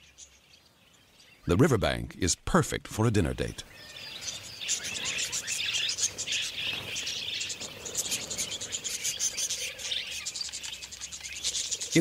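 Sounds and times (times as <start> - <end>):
cockatiels chirping: 3.7 - 12.0.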